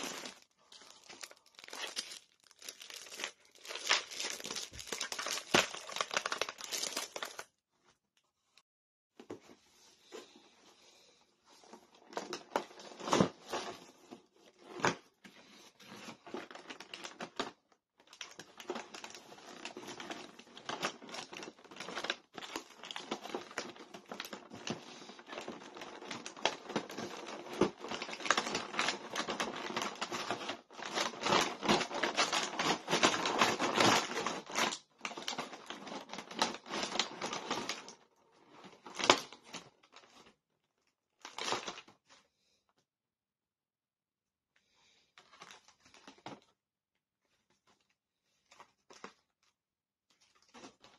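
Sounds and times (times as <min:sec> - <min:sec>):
cardboard and plastic packaging rustling: 0:00.0 - 0:07.5, 0:11.5 - 0:40.4, 0:50.1 - 0:50.9.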